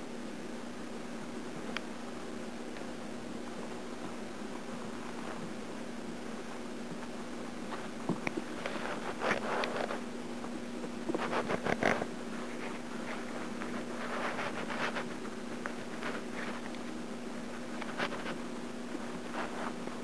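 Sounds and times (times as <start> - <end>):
steady low hum: 0.0 - 20.0
kitten scratching and rustling: 2.6 - 20.0.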